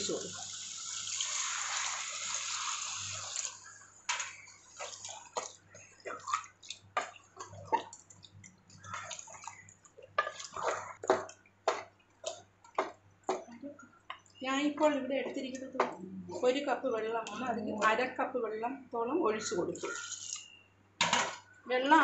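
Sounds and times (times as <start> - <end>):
water pouring into pan: 0.0 - 8.0
spoon scraping in pan: 10.2 - 11.1.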